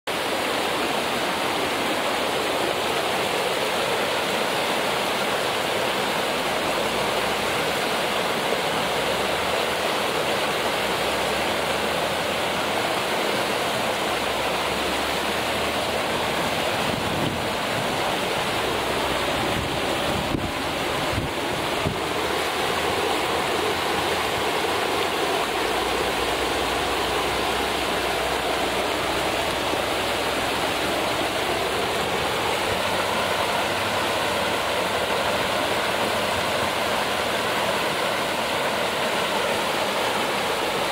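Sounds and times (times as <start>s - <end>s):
stream flowing over rocks: 0.1s - 40.9s.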